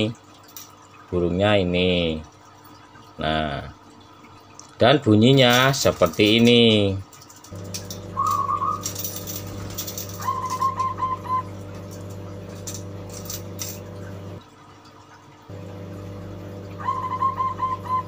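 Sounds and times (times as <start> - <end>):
steady low hum: 7.4 - 14.5, 15.5 - 18.0
bird clipped repeated notes: 8.1 - 8.9, 10.2 - 11.5
dove cooing: 8.1 - 8.9, 10.2 - 11.6, 16.7 - 18.0.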